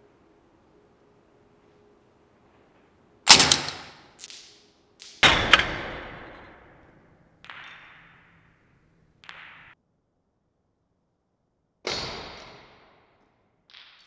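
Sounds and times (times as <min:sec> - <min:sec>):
dart launcher bangs: 0:03.3 - 0:04.2.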